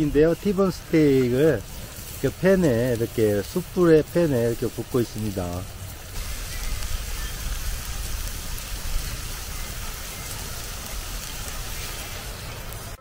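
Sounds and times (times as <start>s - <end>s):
steak sizzling in a pan: 0.0s - 13.0s.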